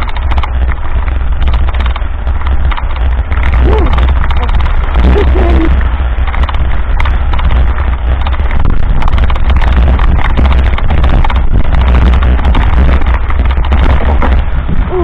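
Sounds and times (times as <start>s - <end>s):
bike parts rattling: 0.0s - 15.0s
wind buffeting microphone: 0.0s - 15.0s.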